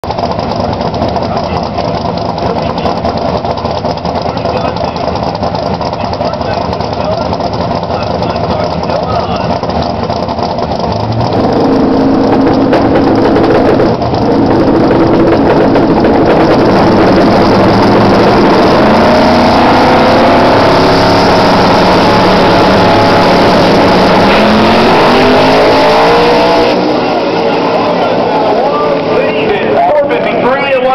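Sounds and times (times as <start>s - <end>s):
drag car engine revving: 0.0s - 30.9s.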